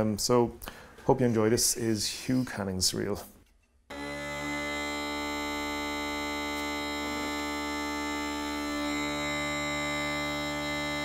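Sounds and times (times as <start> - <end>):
bagpipes holding a chord: 3.9 - 11.0.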